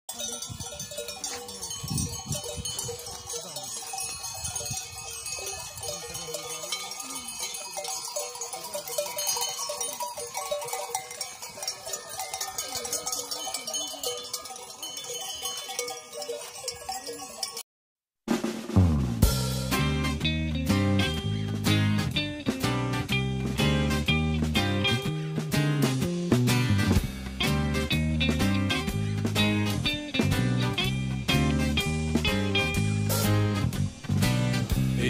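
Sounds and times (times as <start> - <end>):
sheep bells clanking: 0.1 - 17.6.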